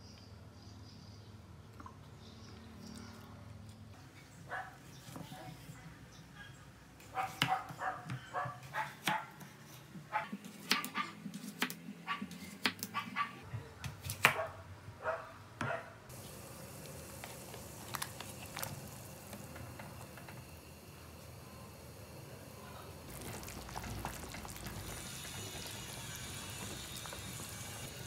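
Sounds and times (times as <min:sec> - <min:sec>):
boiling water hiss: 0:16.1 - 0:28.0.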